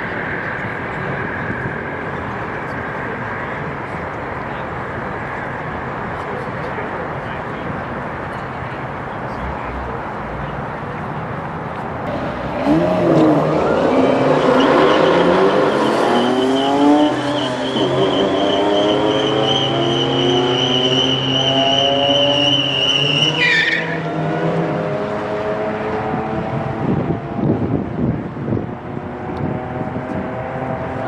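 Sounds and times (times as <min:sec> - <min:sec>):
tires squealing: 0:12.1 - 0:24.7
car engine revving: 0:12.1 - 0:27.2.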